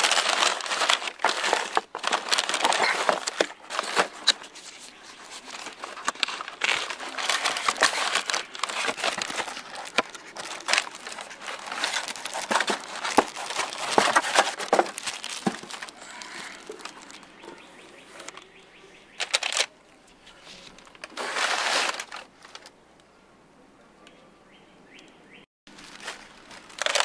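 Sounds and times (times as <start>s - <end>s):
cardboard boxes handled: 0.0s - 17.2s, 20.3s - 22.7s
packing paper crumpling: 0.0s - 17.5s, 19.2s - 22.7s, 25.7s - 27.0s.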